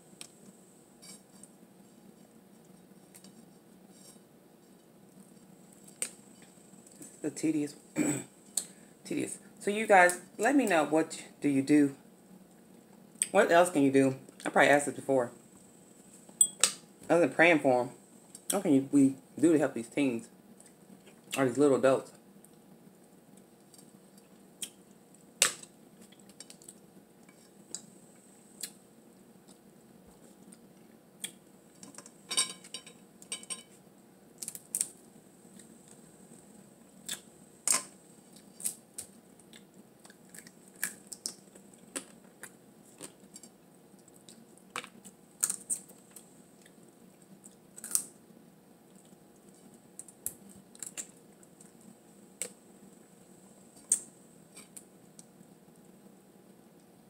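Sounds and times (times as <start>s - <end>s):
crab shells cracking: 34.4s - 35.0s, 38.6s - 42.2s, 43.0s - 45.9s, 47.7s - 48.1s, 50.0s - 51.2s.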